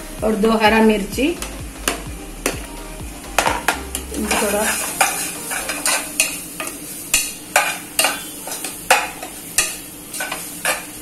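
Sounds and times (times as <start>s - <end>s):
onion sizzling: 0.0s - 11.0s
metal spoon clinking pot: 3.6s - 10.9s.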